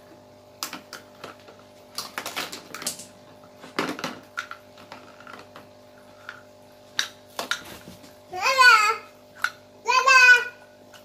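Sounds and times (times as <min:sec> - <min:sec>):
plastic dishes clattering: 0:00.7 - 0:06.4.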